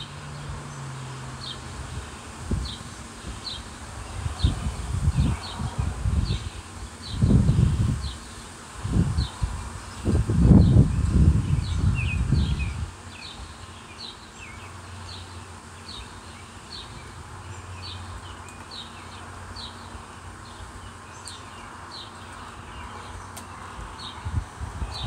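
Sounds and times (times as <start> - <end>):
wind rumble on microphone: 0.0 - 13.5, 22.7 - 25.0
background hiss: 0.0 - 25.0.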